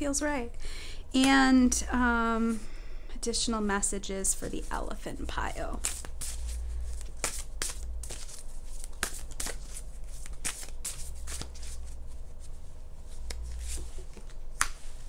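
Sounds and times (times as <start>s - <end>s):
cards being shuffled: 5.7s - 15.0s.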